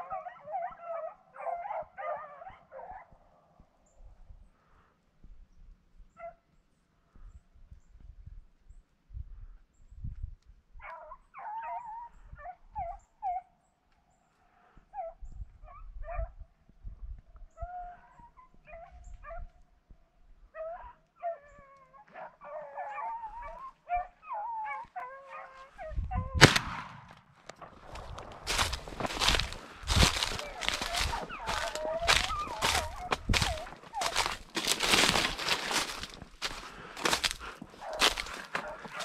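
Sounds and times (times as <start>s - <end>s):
hunting dogs baying: 0.0s - 3.3s, 10.8s - 13.5s, 20.5s - 26.4s, 27.8s - 39.0s.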